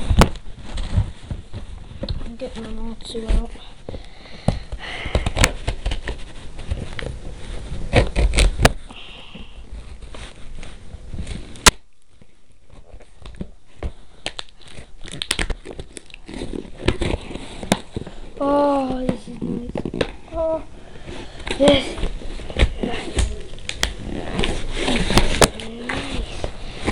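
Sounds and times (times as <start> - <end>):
cardboard box being opened: 21.5 - 26.9.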